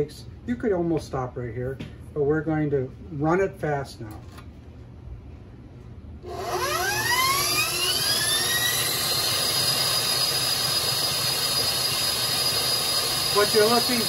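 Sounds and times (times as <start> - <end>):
stand mixer motor whine: 6.2 - 14.0.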